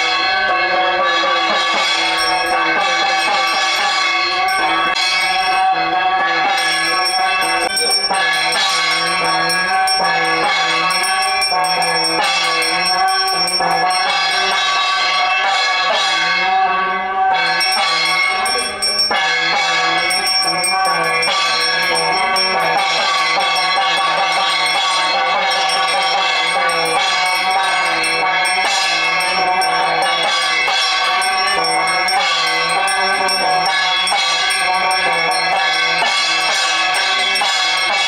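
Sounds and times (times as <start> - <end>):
small hand bell ringing: 0.0 - 16.3, 17.4 - 38.0
music playing: 17.4 - 38.0.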